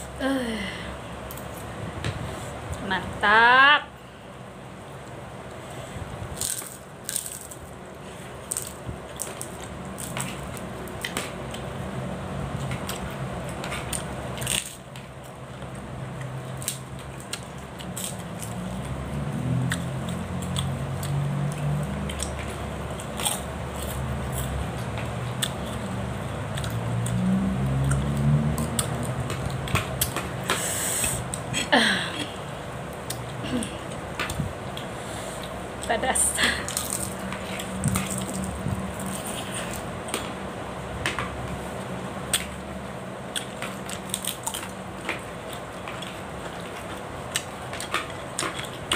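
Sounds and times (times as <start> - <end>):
person chewing and sucking: 16.2 - 26.0, 36.6 - 40.3.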